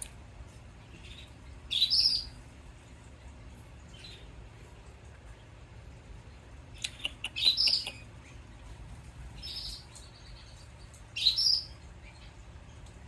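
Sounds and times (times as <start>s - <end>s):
chick cheeping: 6.8s - 8.2s.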